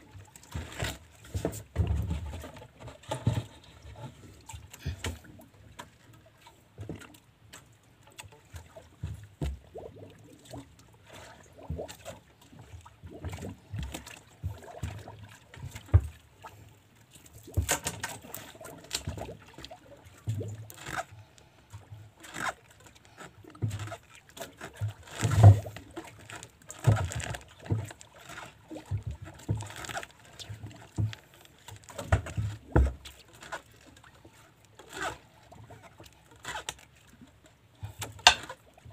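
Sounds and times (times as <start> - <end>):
water splashing at hull: 0.0 - 38.9
wooden boat knocking and bumping: 0.4 - 6.0, 8.7 - 9.8, 12.8 - 16.2, 17.4 - 21.0, 23.5 - 34.0, 37.9 - 38.9.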